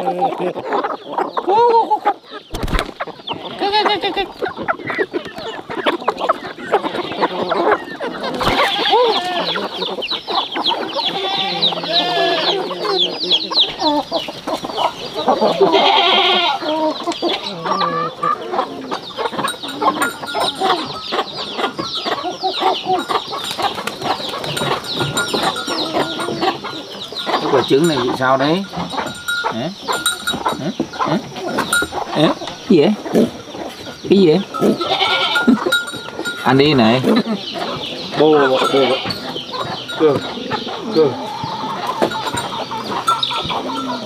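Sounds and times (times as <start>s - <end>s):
chickens clucking: 0.0s - 44.0s.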